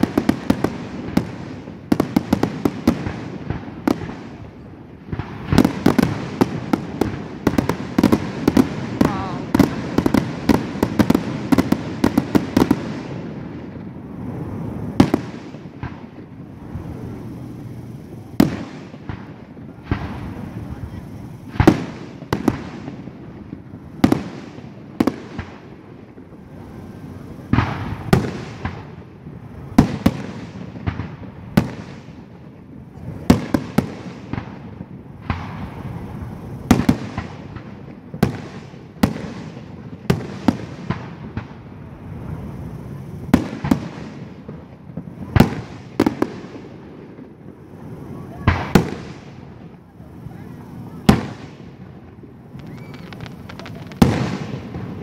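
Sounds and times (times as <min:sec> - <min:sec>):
firework shells bursting: 0:14.1 - 0:32.2, 0:32.9 - 0:55.0.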